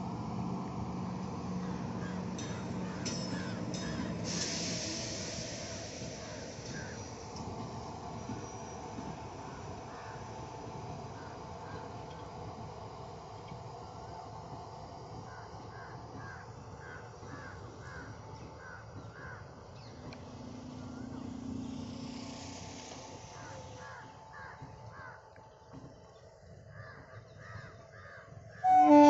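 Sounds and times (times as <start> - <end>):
train rumbling past: 0.0 - 29.0
low tone: 28.6 - 29.0.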